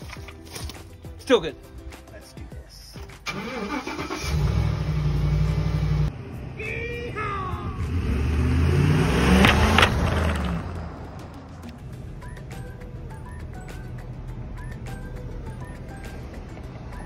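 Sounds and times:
pickup truck engine accelerating: 3.3 - 6.6, 7.7 - 17.0
plastic tray cracking under tyres: 9.4 - 10.8.

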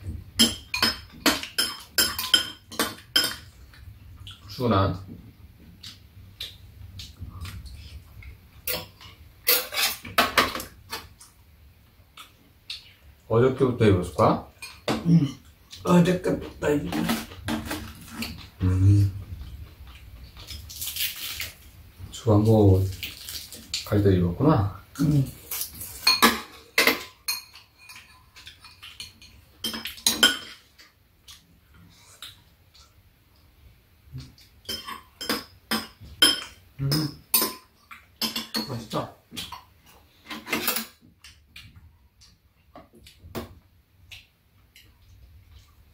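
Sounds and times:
utensils clinking against bowls: 0.4 - 3.5, 8.6 - 10.6, 25.5 - 30.8, 34.6 - 39.6, 40.2 - 41.0
spoons scraping ceramic bowls: 8.7 - 10.2.

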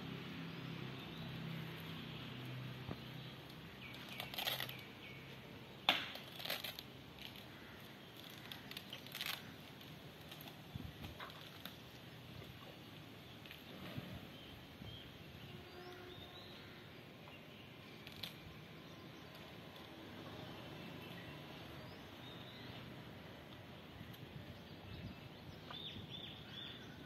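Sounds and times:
elephant snapping leafy branches: 8.2 - 11.8.

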